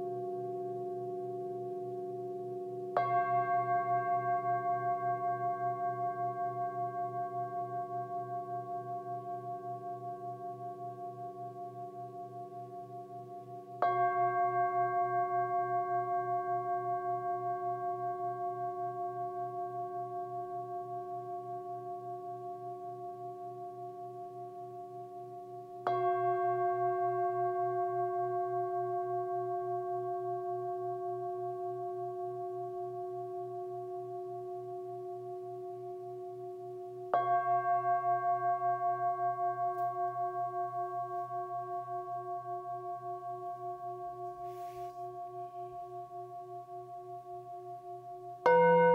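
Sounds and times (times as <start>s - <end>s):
singing bowl ringing: 37.1s - 48.9s.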